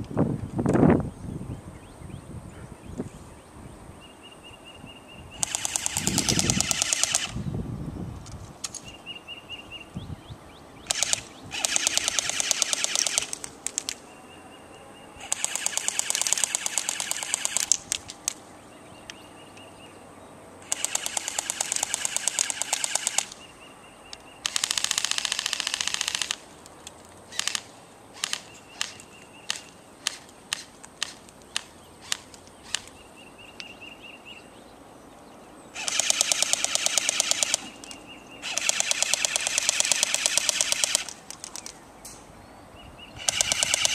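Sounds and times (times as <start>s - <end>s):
airsoft guns firing full-auto bursts: 5.4s - 7.4s, 10.9s - 13.5s, 15.2s - 17.9s, 20.6s - 23.4s, 24.4s - 26.4s, 35.8s - 37.8s, 38.4s - 41.6s, 43.2s - 43.9s
airsoft single shots: 10.9s - 13.9s, 15.2s - 18.0s, 35.8s - 37.8s, 38.4s - 41.2s, 43.2s - 43.9s.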